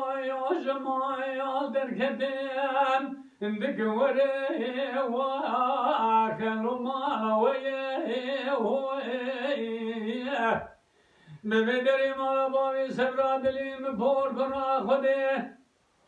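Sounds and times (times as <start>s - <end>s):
man singing unaccompanied: 0.0s - 15.6s
man breathing in: 10.9s - 11.5s.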